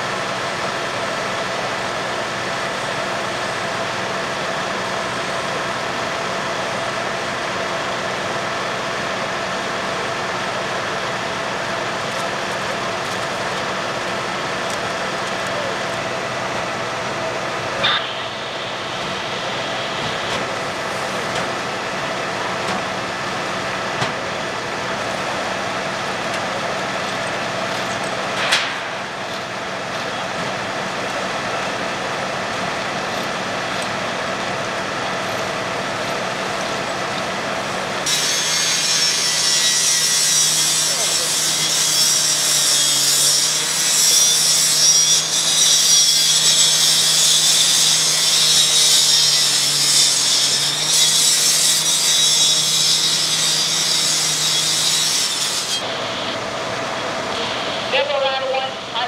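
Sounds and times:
saw engine drone: 0.0s - 59.0s
rotary saw cutting metal: 38.0s - 55.9s.

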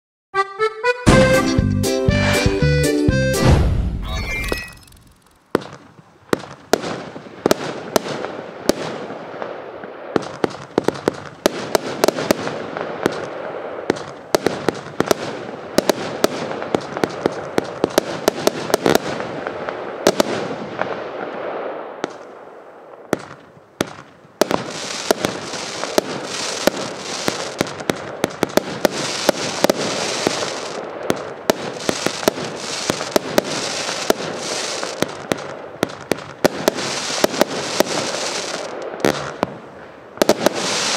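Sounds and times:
firework launches and bursts: 3.4s - 22.3s, 23.1s - 40.9s
firework crackling: 4.7s - 40.9s.

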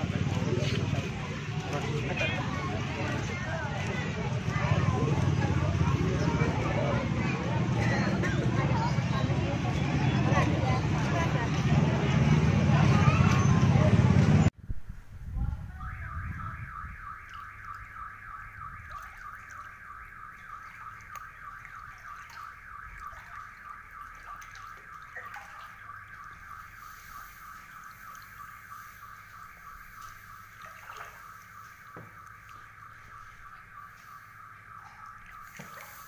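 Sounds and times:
car alarm warbling: 15.6s - 36.0s.

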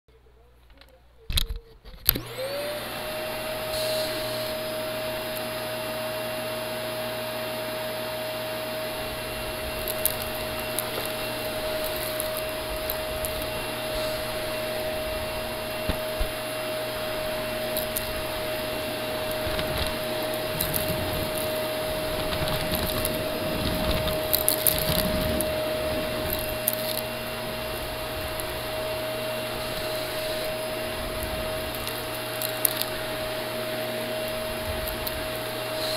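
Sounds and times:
vacuum cleaner motor whine: 1.9s - 35.9s
debris crackling in vacuum: 7.4s - 35.9s.

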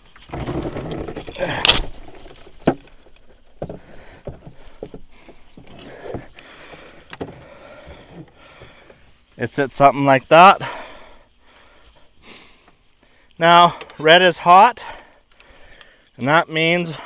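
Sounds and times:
small plastic clicks and knocks: 0.1s - 8.7s.

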